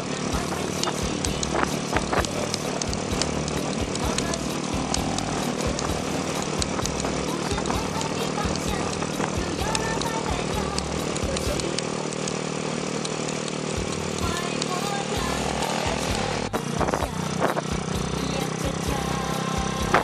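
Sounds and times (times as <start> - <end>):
motorcycle engine running: 0.0 - 20.0
wind rumbling on microphone: 16.6 - 17.7.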